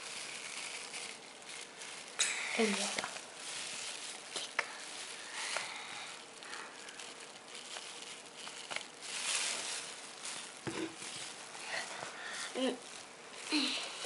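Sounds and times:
plastic bag crinkling: 0.0 - 14.0.

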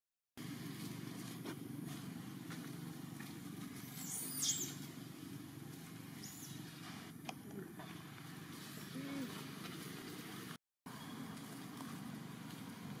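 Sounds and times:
low outdoor rumble: 0.4 - 13.0.

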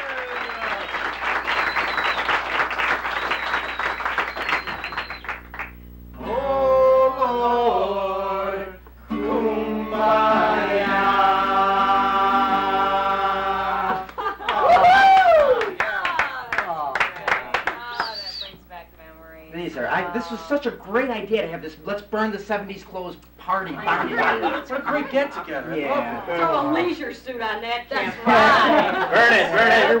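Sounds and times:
audience applause: 0.0 - 5.8, 14.0 - 18.2.

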